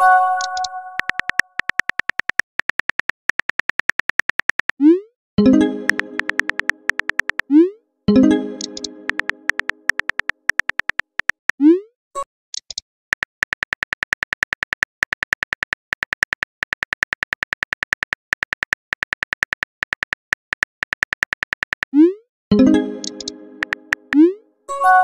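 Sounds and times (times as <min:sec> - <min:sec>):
phone keyboard typing clicks: 0:00.4 - 0:04.8, 0:05.6 - 0:07.5, 0:08.5 - 0:11.6, 0:12.6 - 0:21.9, 0:22.8 - 0:24.3.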